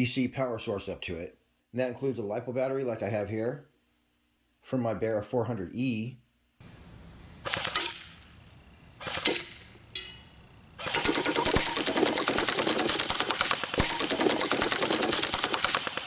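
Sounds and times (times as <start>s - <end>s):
rifle firing rapidly: 10.8s - 16.0s.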